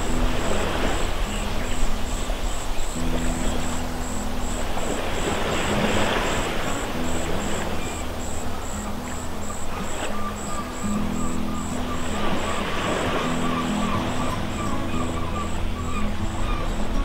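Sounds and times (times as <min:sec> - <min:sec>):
waves breaking against seawall: 0:00.0 - 0:15.1
background music with low notes: 0:00.0 - 0:17.0
wind: 0:00.0 - 0:17.0.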